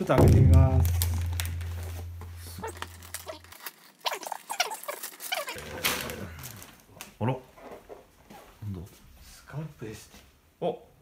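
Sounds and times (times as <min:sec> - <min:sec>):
low hum: 0:00.2 - 0:03.2
wrapping paper rustling and tearing: 0:00.3 - 0:07.1.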